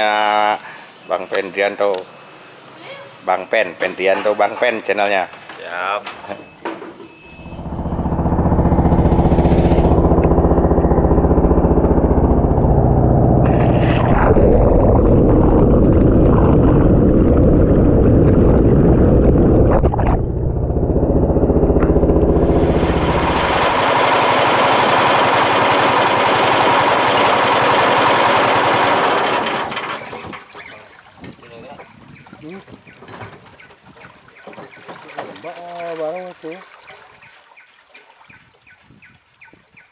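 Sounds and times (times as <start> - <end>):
small boat engine running: 7.1 - 30.4.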